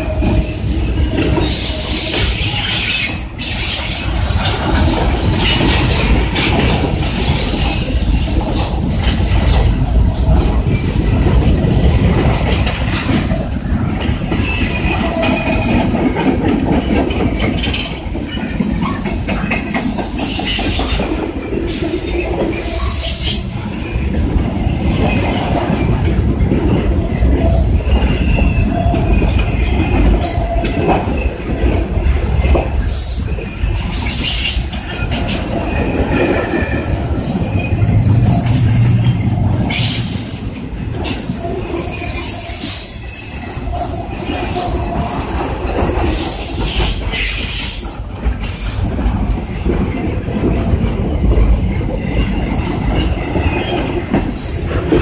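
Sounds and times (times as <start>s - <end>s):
train wheels rumbling on rail: 0.0s - 55.0s
wheels clacking over rail joints: 0.0s - 55.0s
wheels squealing: 32.3s - 47.9s.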